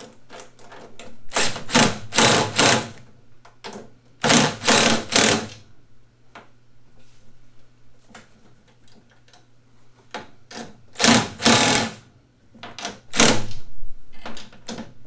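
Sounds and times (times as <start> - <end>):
faint steady hum: 0.0 - 15.0
cordless drill driving bolts: 1.3 - 3.0, 4.2 - 5.6, 11.0 - 12.0.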